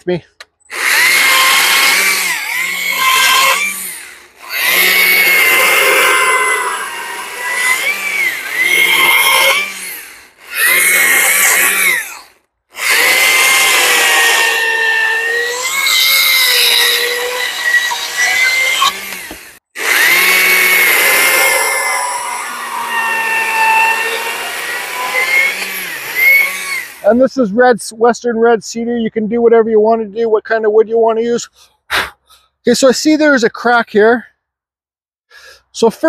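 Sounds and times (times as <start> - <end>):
electric chainsaw cutting log: 0.7 - 27.2.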